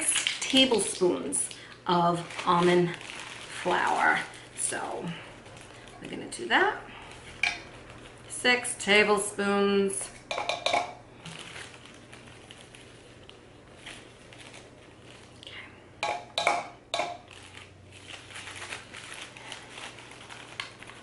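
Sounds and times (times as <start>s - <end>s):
plastic bag crinkling: 0.0s - 8.3s, 11.1s - 15.6s, 17.2s - 21.0s
spoon tapping plastic cup: 10.3s - 11.0s, 16.0s - 17.2s.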